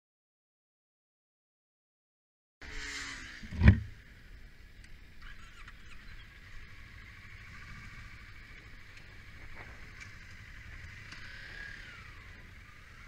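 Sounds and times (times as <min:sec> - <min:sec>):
loud thump: 0:03.5 - 0:03.9
motorcycle engine running: 0:05.8 - 0:13.0.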